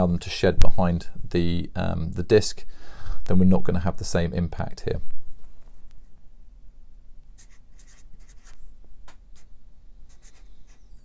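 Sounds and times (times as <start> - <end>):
marker pen scratching on board: 7.4 - 8.6, 10.1 - 11.0.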